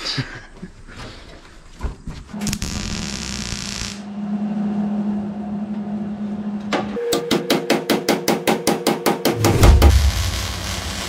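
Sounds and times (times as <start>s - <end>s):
steady low hum: 2.2s - 7.0s
welder arc hissing and crackling: 2.4s - 4.1s, 9.6s - 11.0s.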